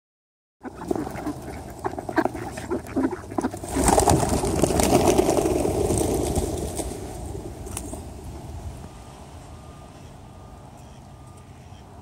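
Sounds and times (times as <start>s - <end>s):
ducks and pigeons calling: 0.6s - 6.1s, 9.8s - 12.0s
flapping wings: 0.6s - 7.9s.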